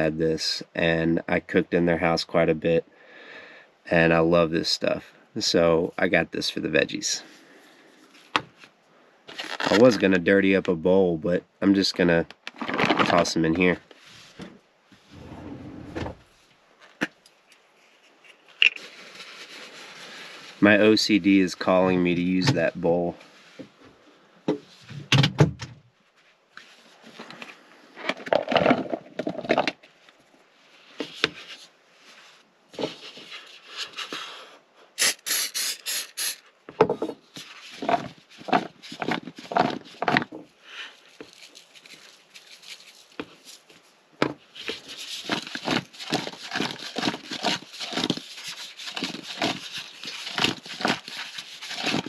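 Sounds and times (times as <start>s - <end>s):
aerosol cooking spray hiss: 35.0s - 36.4s.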